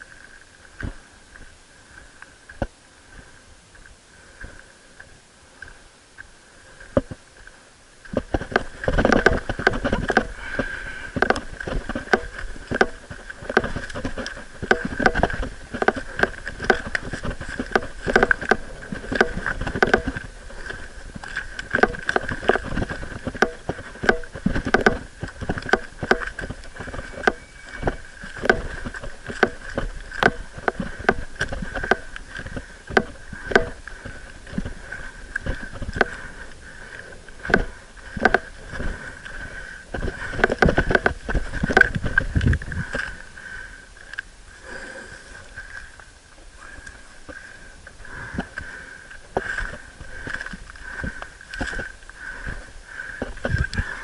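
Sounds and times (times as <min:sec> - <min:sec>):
footsteps on loose stones: 0:08.1 - 0:43.2.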